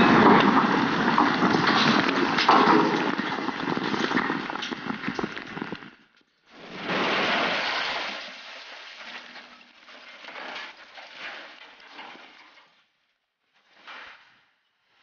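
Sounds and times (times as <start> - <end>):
debris falling: 0.0 - 5.8, 6.6 - 12.6.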